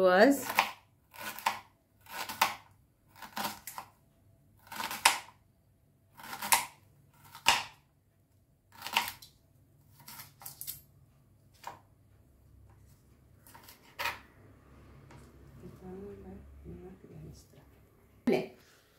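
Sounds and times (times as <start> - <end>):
knife crunching through onion: 0.4 - 4.0, 4.6 - 5.4, 6.1 - 7.8, 8.7 - 9.3, 9.9 - 10.5.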